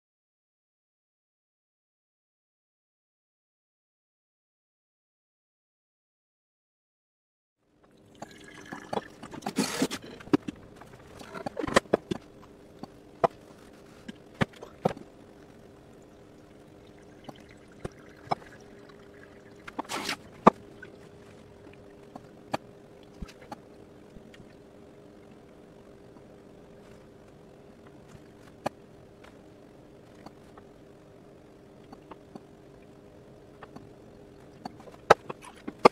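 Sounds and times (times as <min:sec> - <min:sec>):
faint steady hum: 0:07.6 - 0:35.9
water pouring onto coffee grounds: 0:08.1 - 0:09.1.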